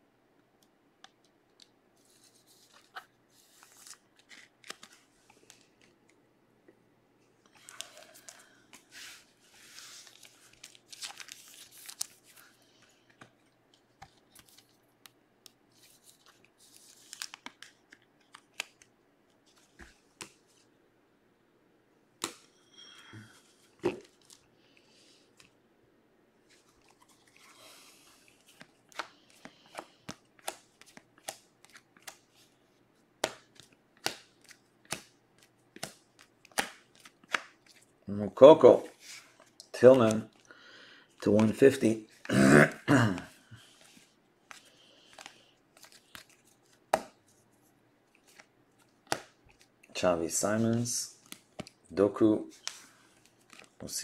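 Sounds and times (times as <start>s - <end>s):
plastic card sleeves rustling: 1.1s - 6.2s, 7.5s - 20.7s, 26.4s - 40.5s, 41.1s - 42.3s, 43.2s - 54.0s
cards clicking and tapping: 28.5s - 32.3s, 33.2s - 37.8s, 44.5s - 47.2s, 48.2s - 49.7s.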